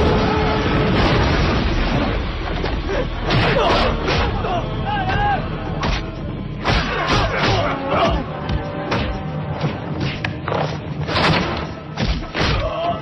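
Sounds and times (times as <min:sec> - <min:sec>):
action film music: 0:00.0 - 0:13.0
shouting voices: 0:06.7 - 0:08.3.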